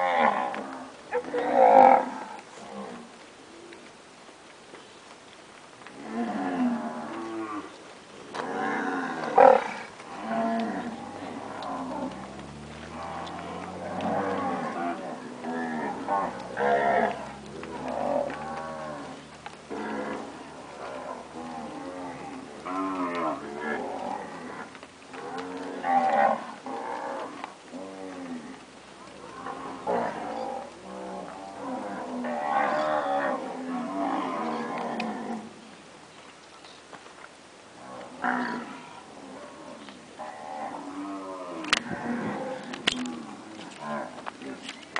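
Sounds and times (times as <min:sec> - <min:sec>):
cattle mooing: 0:08.3 - 0:35.4.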